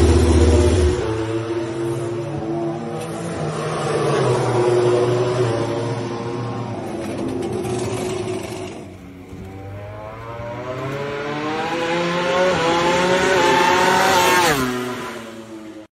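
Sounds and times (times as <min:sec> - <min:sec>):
motorcycle engine running: 0:00.0 - 0:01.5
racing engine accelerating: 0:00.0 - 0:15.8.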